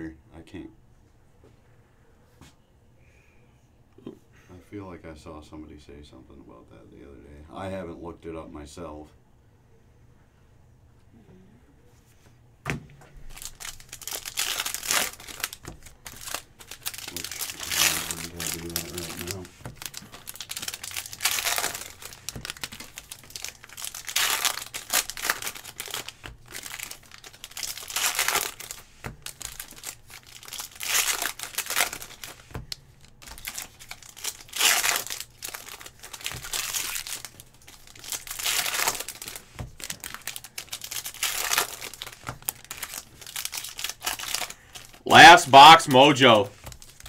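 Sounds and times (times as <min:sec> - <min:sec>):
foil wrappers crinkling and tearing: 0:13.2 - 0:47.0.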